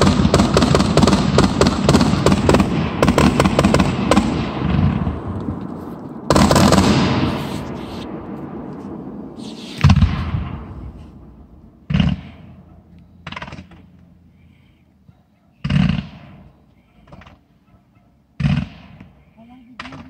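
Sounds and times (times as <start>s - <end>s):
fireworks bangs: 0.0s - 12.7s
fireworks cracks: 0.0s - 12.7s.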